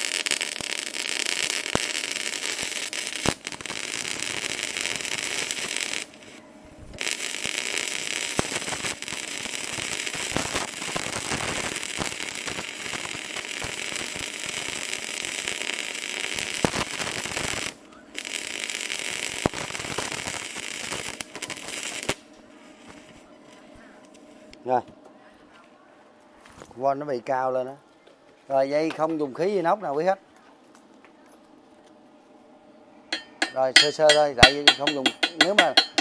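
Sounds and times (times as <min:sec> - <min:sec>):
welding arc crackling: 0:00.0 - 0:06.4, 0:07.0 - 0:23.3, 0:33.1 - 0:36.0.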